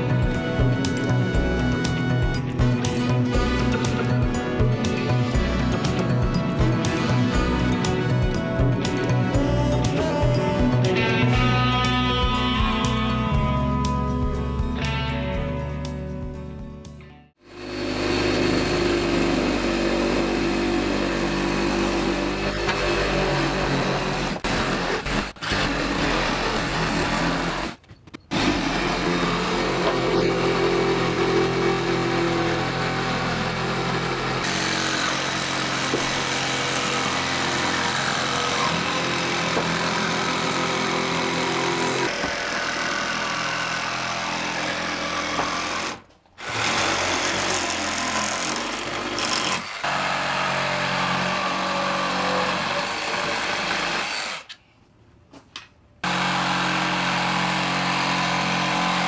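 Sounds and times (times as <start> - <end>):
reciprocating saw cutting wood: 17.4 - 54.6, 56.0 - 59.0.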